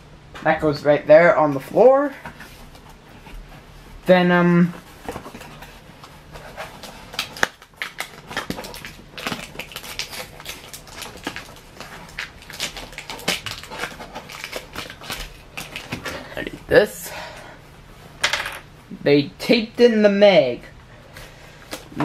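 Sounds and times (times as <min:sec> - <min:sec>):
packaging crinkling and scraping: 0:04.6 - 0:16.6.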